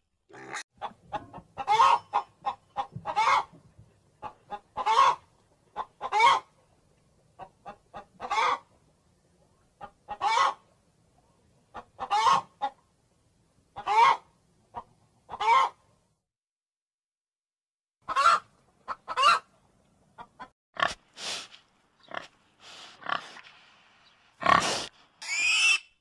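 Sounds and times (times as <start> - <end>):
hen clucking and squawking: 0.3 - 3.6, 4.2 - 6.5, 7.4 - 8.8, 9.8 - 10.7, 11.7 - 12.8, 13.8 - 15.9, 18.0 - 19.5.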